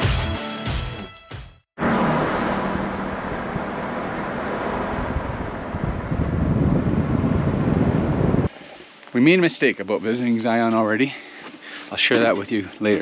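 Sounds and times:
low engine hum: 0:01.8 - 0:08.5
road and wind noise: 0:01.8 - 0:08.6.

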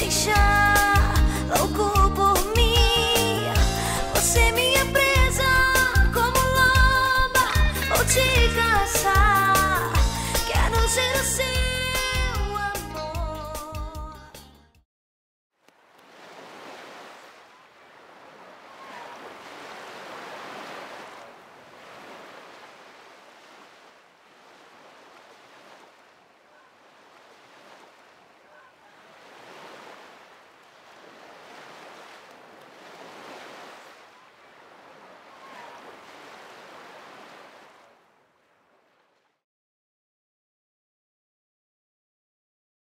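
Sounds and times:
waves washing on open water: 0:15.6 - 0:39.4.

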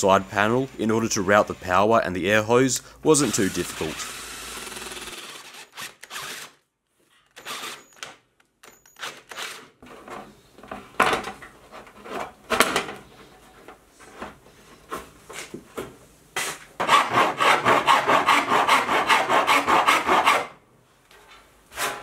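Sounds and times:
drill cutting sheet metal: 0:03.1 - 0:06.6, 0:07.4 - 0:08.0.

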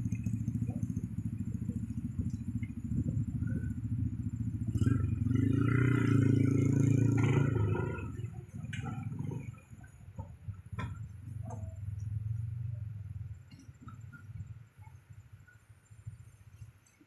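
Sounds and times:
engine passing close by: 0:00.0 - 0:14.5
traffic engines droning: 0:00.0 - 0:16.4.

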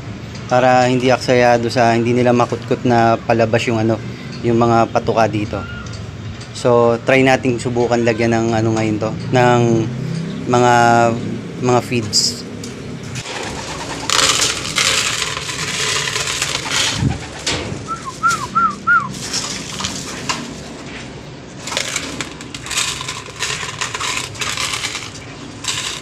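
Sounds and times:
grain pouring onto plastic: 0:14.1 - 0:17.0, 0:21.6 - 0:26.0.

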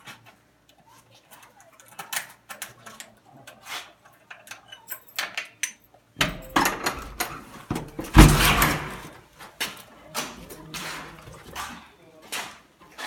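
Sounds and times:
key rattling in a lock: 0:04.3 - 0:09.0
door thump: 0:06.2 - 0:09.1.

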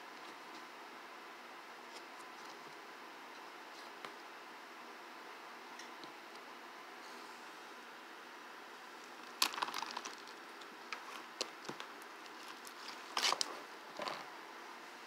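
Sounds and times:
foam slime crackling and popping: 0:09.2 - 0:13.5.

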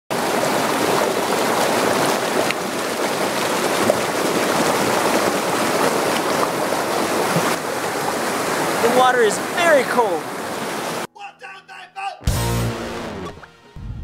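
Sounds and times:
stream rushing over rocks: 0:00.1 - 0:11.1.

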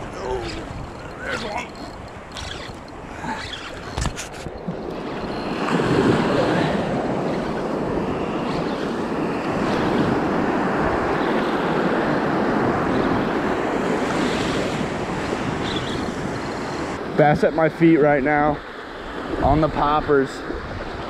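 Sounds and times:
wind buffeting microphone: 0:00.0 - 0:17.8
ocean surf washing in: 0:04.8 - 0:19.8.

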